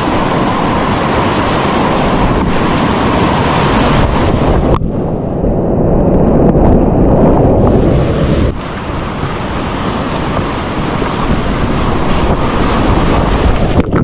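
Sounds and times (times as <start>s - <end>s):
rushing whitewater roar: 0.0s - 5.2s, 7.6s - 14.0s.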